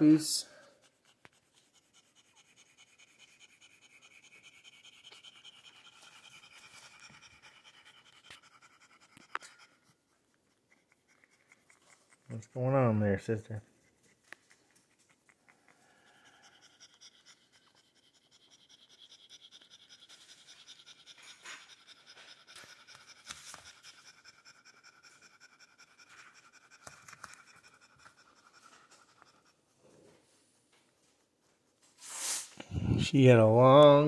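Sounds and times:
dog panting rapidly: 0:00.6 - 0:12.7, 0:13.6 - 0:29.6.

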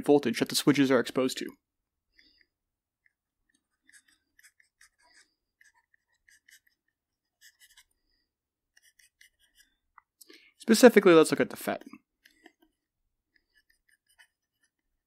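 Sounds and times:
stylus writing on tablet: 0:02.1 - 0:10.2, 0:11.6 - 0:15.0.

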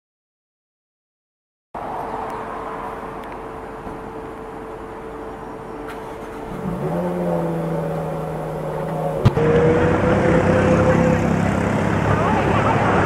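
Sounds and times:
car engine: 0:01.8 - 0:13.0
road traffic: 0:01.8 - 0:13.0
vehicle engine accelerating: 0:05.8 - 0:13.0.

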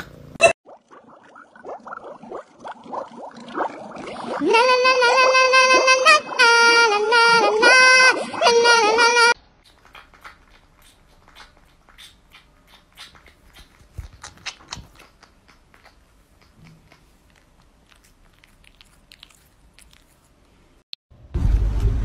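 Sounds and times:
kitten chewing clicks: 0:09.6 - 0:20.2.

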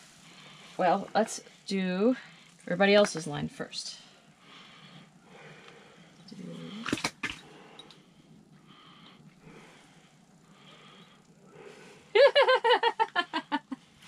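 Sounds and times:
person laughing: 0:12.2 - 0:13.8.

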